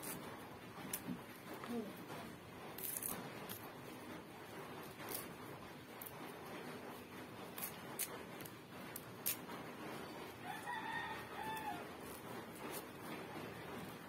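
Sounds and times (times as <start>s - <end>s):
leaves being picked by hand: 0.0s - 14.0s
fowl crowing: 10.4s - 11.9s.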